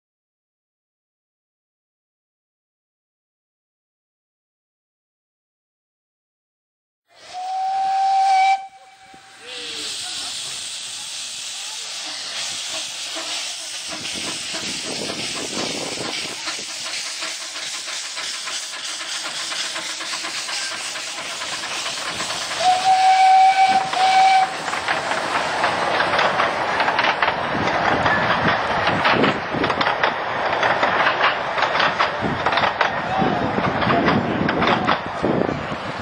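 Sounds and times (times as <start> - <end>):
steam whistle blasts: 7.1 - 10.0, 22.6 - 24.6
steam hissing: 7.1 - 30.1
steam locomotive chuffing: 7.1 - 36.0.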